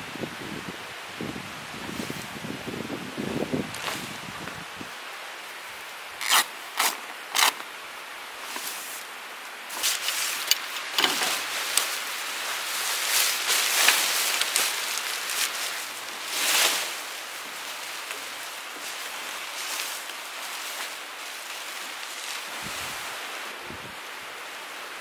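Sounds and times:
fabric rustling and crinkling: 0:03.4 - 0:04.8, 0:06.2 - 0:07.7, 0:08.3 - 0:23.6
fabric flapping: 0:09.7 - 0:23.3.

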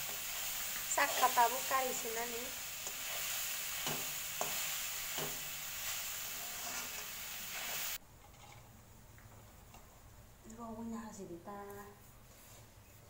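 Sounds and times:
coconut sizzling in a wok: 0:00.0 - 0:08.4
utensil scraping a pan: 0:02.8 - 0:08.6.

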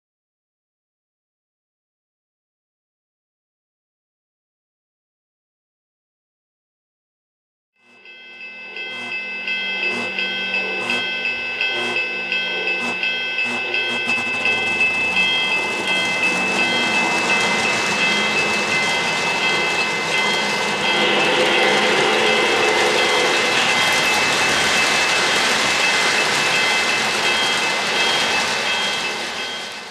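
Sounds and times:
high electronic ding: 0:08.0 - 0:25.5
model trains rumbling clatter: 0:13.8 - 0:29.9.

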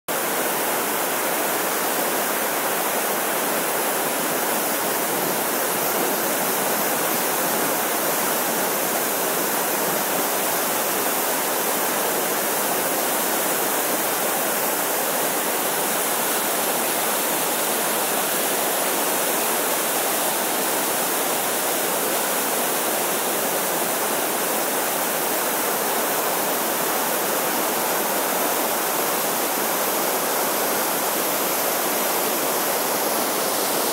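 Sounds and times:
waterfall rushing over rocks: 0:00.1 - 0:33.9.

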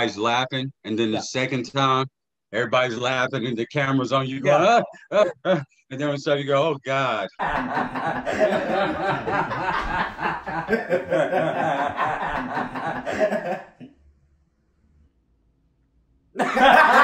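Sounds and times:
people laughing: 0:07.3 - 0:13.9, 0:16.4 - 0:17.0.

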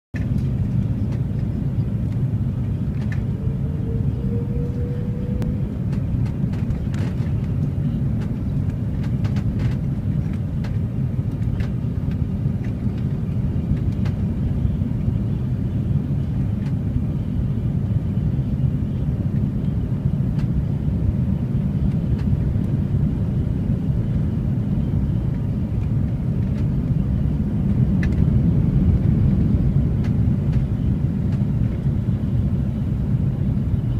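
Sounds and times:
airplane cabin rumble: 0:00.1 - 0:33.9
faint rising whine: 0:01.7 - 0:07.0.

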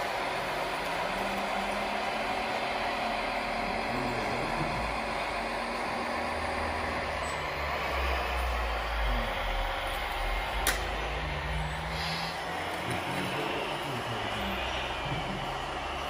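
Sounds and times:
model engine running unevenly: 0:00.0 - 0:16.0
sharp click: 0:10.6 - 0:10.9.

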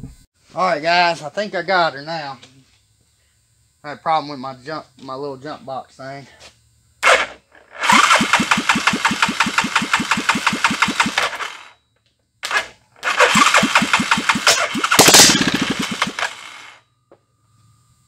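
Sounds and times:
single-cylinder engine running: 0:07.0 - 0:11.7, 0:12.4 - 0:16.8.

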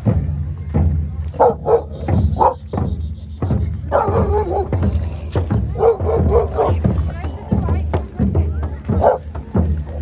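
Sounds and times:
dog barking sharply: 0:01.4 - 0:02.6, 0:03.9 - 0:04.8, 0:05.8 - 0:06.8.

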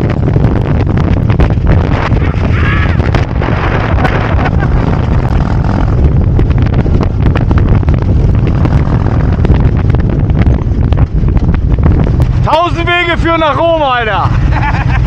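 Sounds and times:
motorcycle engine running: 0:00.0 - 0:15.0
wind buffeting microphone: 0:00.0 - 0:15.0.

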